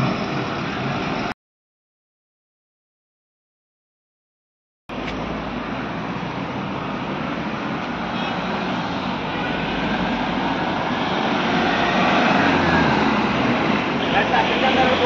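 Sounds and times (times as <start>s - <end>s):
vehicle engines running: 9.0s - 15.0s.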